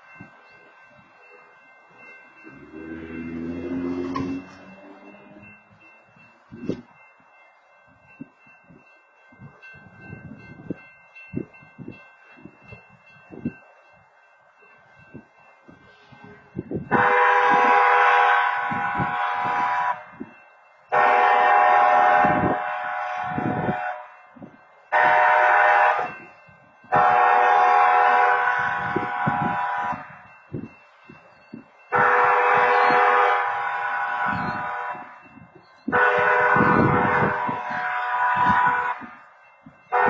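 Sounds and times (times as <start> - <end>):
railroad crossing horn blasts: 2.5 - 5.7, 16.8 - 20.3, 20.9 - 24.2, 24.9 - 26.3, 26.9 - 30.3, 31.9 - 40.0.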